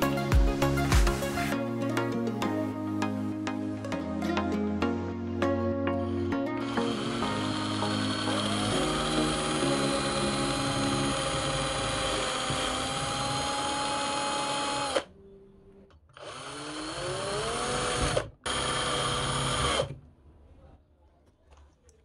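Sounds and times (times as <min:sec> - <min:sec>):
electric drill whining: 0:06.6 - 0:15.1, 0:16.1 - 0:20.0.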